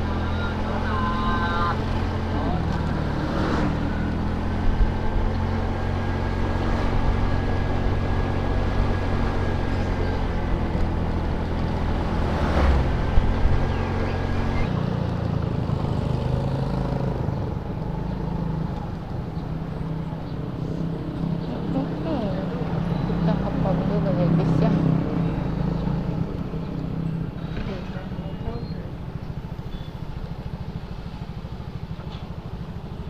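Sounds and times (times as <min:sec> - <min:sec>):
scooter engine running: 0:00.0 - 0:12.1, 0:13.0 - 0:33.0
wind and road noise: 0:00.0 - 0:33.0
passing truck whoosh: 0:01.8 - 0:04.9, 0:11.7 - 0:14.7.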